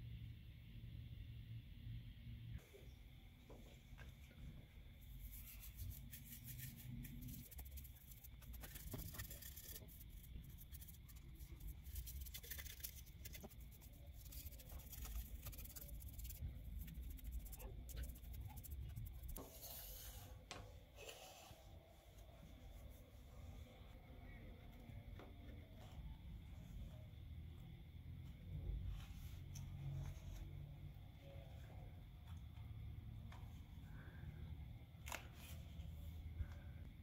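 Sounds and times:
paintbrush scratching wood: 0:05.2 - 0:20.3.

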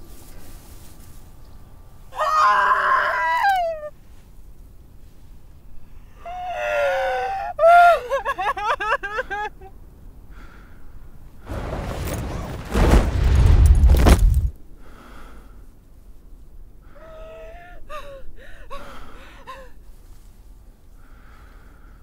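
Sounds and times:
woman wailing and sobbing: 0:06.3 - 0:09.6.

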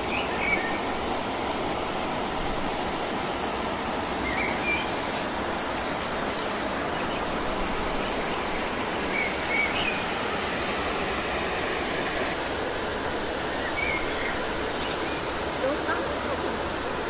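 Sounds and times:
rushing outdoor ambience: 0:00.0 - 0:17.0
bird chirps: 0:09.1 - 0:10.1.

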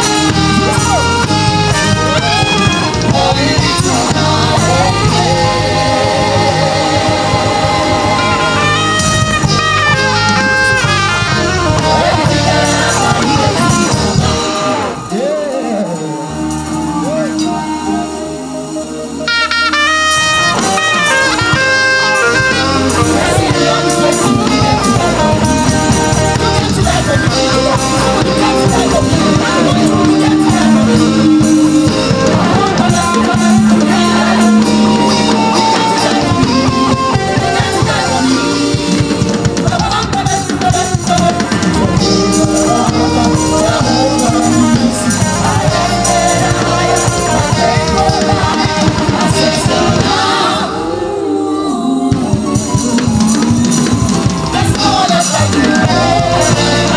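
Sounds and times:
soprano saxophone melody: 0:00.0 - 0:15.1, 0:16.4 - 0:40.2
bass guitar: 0:00.0 - 0:51.2, 0:52.1 - 0:56.9
drum kit: 0:00.0 - 0:56.9
electric guitar: 0:00.0 - 0:56.9.

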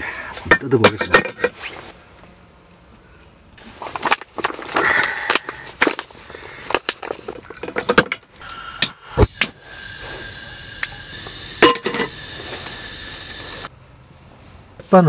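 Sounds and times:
gas burner hissing: 0:08.4 - 0:13.7.

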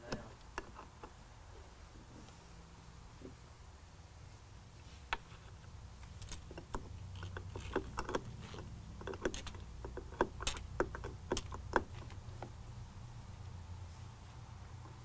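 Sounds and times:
hand ratchet clicking: 0:06.2 - 0:12.2.

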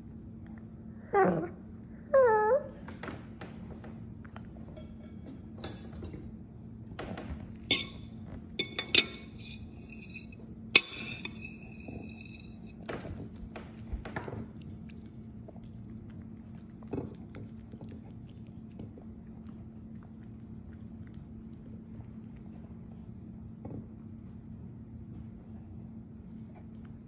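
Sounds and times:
ceramic plate clinking: 0:07.7 - 0:12.8.

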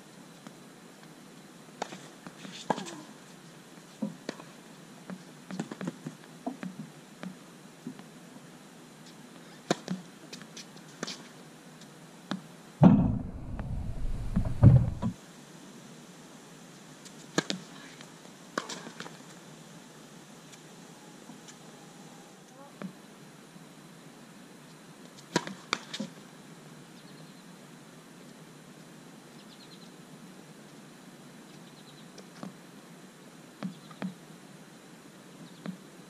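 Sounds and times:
low rumble on microphone: 0:12.8 - 0:15.2.

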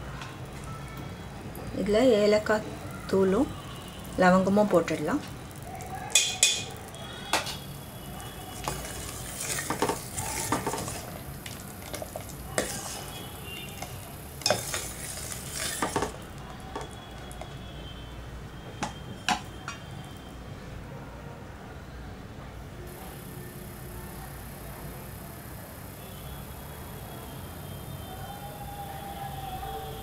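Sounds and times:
steel spoon stirring in metal pot: 0:05.8 - 0:07.7, 0:08.3 - 0:17.5.

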